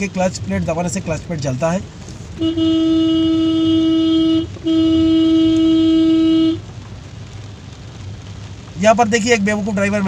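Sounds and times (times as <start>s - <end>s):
low traffic rumble: 0.0s - 10.0s
car horn blasts: 2.4s - 6.6s.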